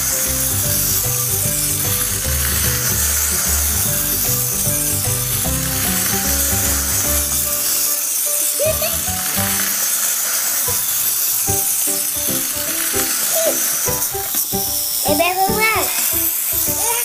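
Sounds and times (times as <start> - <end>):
background music with bass line: 0.0 - 7.6.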